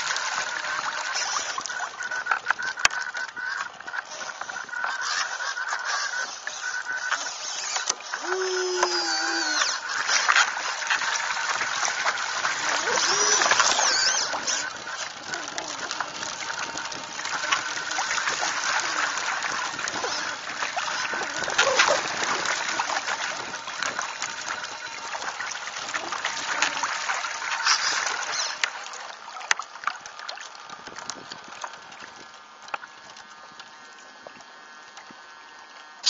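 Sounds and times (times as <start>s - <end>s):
water splashing past a hull: 6.7s - 33.3s
bird calling: 12.5s - 16.0s.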